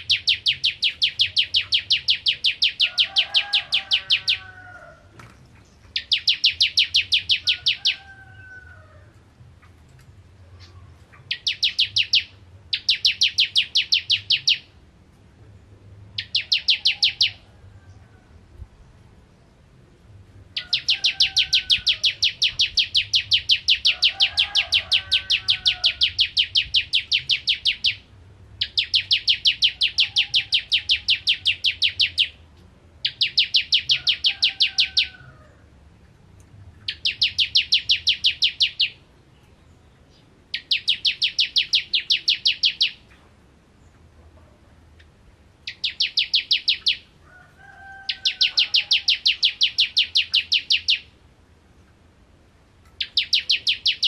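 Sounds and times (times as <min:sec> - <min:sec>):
bird singing rapid high notes: 0:00.0 - 0:04.4, 0:05.9 - 0:08.0, 0:10.6 - 0:14.8, 0:16.2 - 0:17.4, 0:20.6 - 0:24.3, 0:25.2 - 0:32.4, 0:33.0 - 0:35.1, 0:36.9 - 0:39.0, 0:40.1 - 0:43.2, 0:45.6 - 0:47.1, 0:48.2 - 0:51.2, 0:53.0 - 0:54.0.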